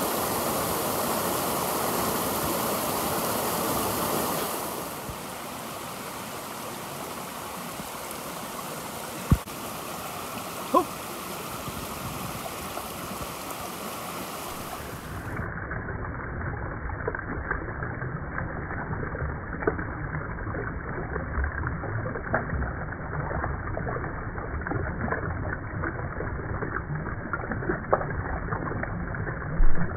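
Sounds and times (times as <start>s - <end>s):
stream running over rocks: 0.0s - 29.9s
water sloshing and splashing: 3.5s - 15.6s.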